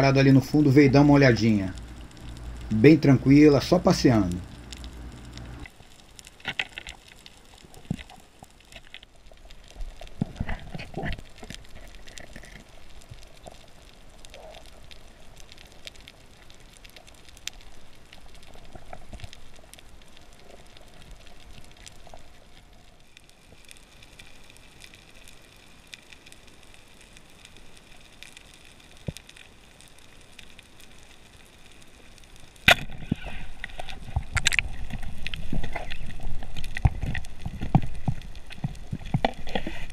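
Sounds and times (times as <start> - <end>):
faint high whine: 0.0 - 5.7
low hiss: 0.0 - 39.9
underwater crackling clicks: 0.8 - 22.7, 23.5 - 39.9
rough water noise: 32.6 - 39.9.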